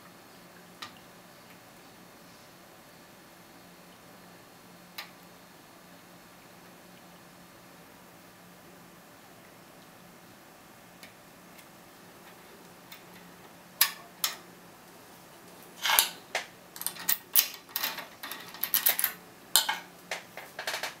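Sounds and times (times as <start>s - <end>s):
lock picks clicking and scraping: 15.8s - 16.2s, 16.8s - 19.8s.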